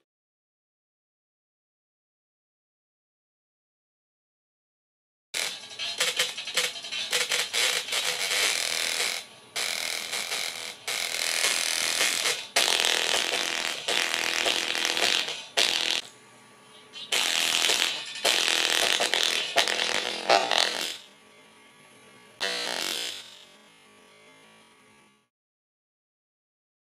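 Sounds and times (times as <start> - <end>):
distorted buzzing speaker music: 5.4 - 25.3.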